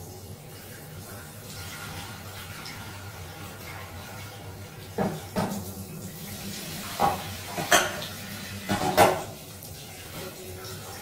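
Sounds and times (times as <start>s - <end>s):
clatters of dishes: 5.0s - 5.7s, 6.9s - 9.4s.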